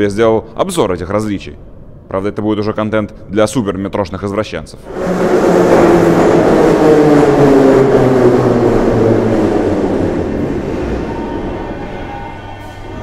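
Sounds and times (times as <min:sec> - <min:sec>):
train traction motor whine: 0:04.9 - 0:13.0.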